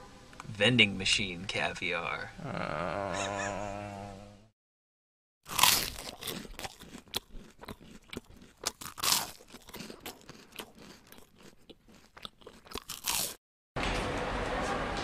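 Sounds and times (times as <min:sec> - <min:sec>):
crunching and crackling: 0:05.5 - 0:13.4.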